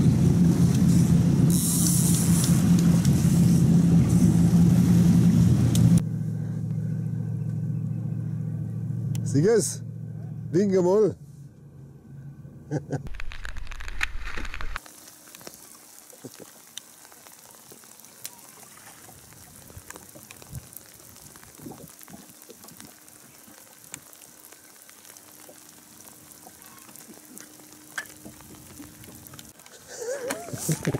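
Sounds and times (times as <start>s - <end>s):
faint steady hiss: 13.1s - 30.9s.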